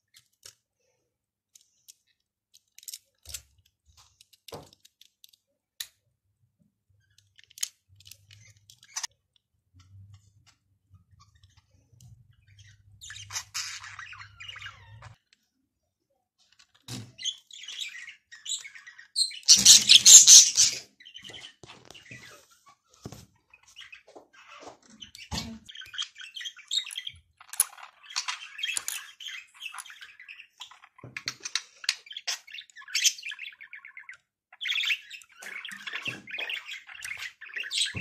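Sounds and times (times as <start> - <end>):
plastic bricks clicking together: 1.5 - 5.9
high chirping sounds: 17.1 - 22.5.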